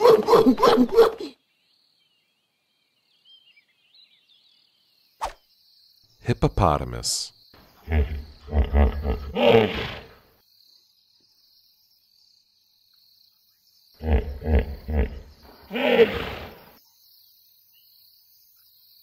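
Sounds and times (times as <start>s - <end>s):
hippopotamus grunting: 7.8s - 10.2s, 14.0s - 16.7s
hippopotamus drawn-out call: 14.0s - 16.7s.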